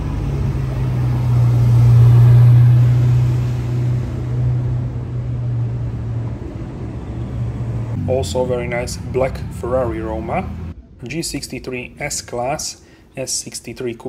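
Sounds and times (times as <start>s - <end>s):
sports car driving past: 0.0s - 10.8s.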